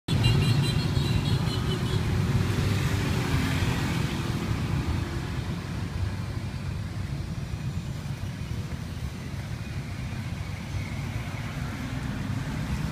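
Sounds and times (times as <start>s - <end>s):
street traffic rumble: 0.1s - 12.9s.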